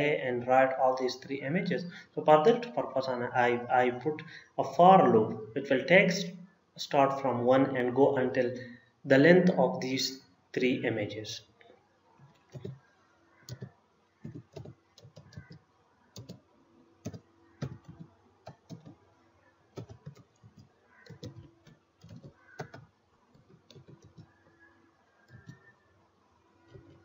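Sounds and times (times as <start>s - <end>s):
typing on keyboard: 12.4s - 12.8s, 13.5s - 15.6s, 16.2s - 16.4s, 17.0s - 19.0s, 19.8s - 24.4s, 25.3s - 25.7s.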